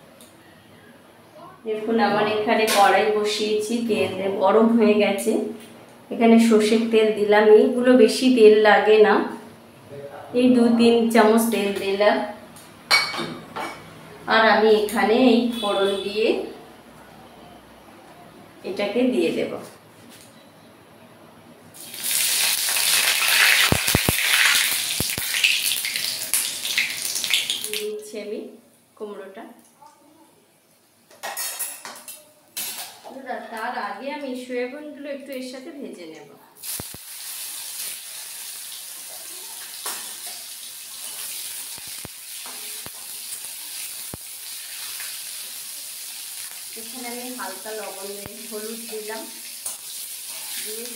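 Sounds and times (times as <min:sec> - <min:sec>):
spices sizzling in hot oil: 0:21.8 - 0:27.9, 0:36.6 - 0:50.9.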